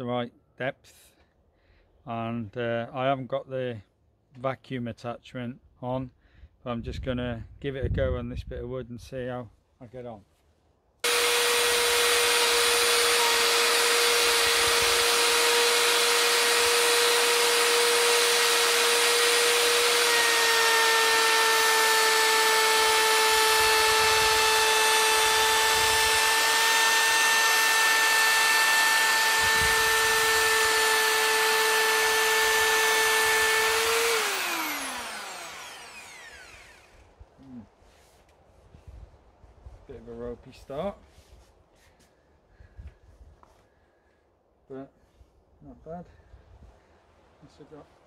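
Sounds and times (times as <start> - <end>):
router motor whining: 11.0 - 37.1
router winding down: 11.0 - 37.1.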